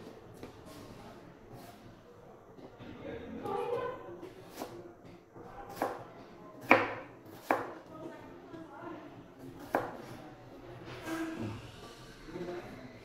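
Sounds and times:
knife chopping on plastic board: 5.7 - 7.8, 9.6 - 10.0.

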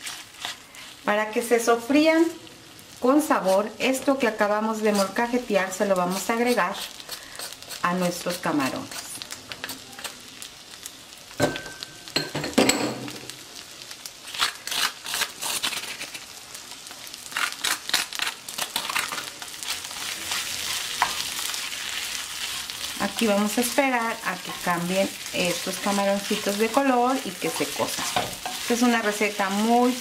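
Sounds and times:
spatula scraping pan: 0.0 - 1.2, 4.8 - 5.2, 18.7 - 30.0
shrimp sizzling in butter: 0.0 - 30.0.

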